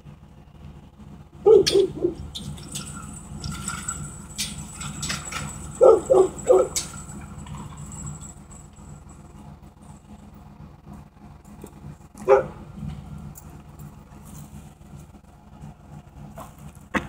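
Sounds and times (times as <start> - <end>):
dog barking: 1.4 - 2.2, 5.8 - 6.9, 12.2 - 12.6.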